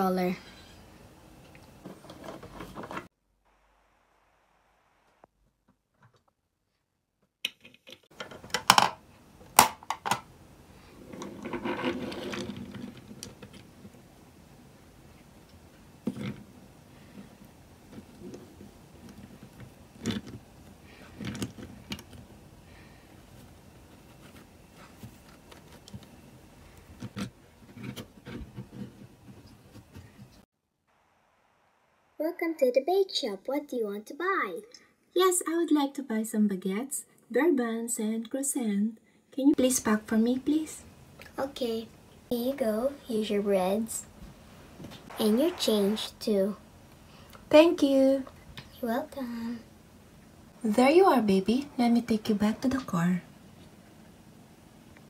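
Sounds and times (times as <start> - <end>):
plastic toys clicking and knocking: 7.4 - 10.3
soft scraping and rubbing: 10.9 - 13.2, 43.8 - 46.6.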